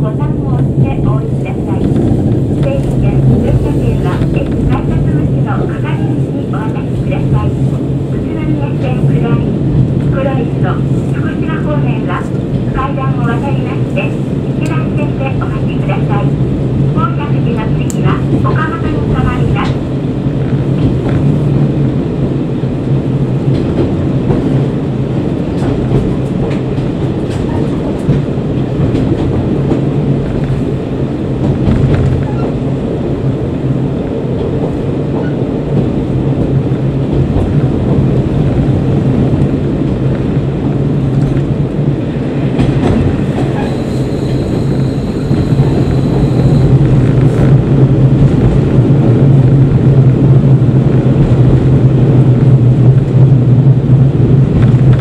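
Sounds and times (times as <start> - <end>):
wheels rumbling on rails: 0.0 - 55.0
high squeal: 43.5 - 46.8.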